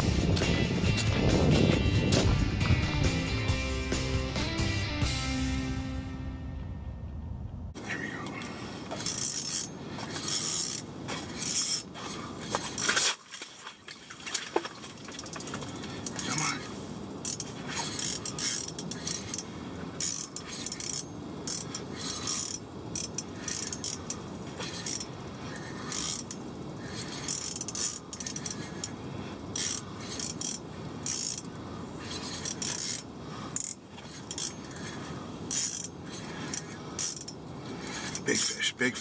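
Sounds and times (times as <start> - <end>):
fishing gear clicking and rattling: 8.2 - 38.7.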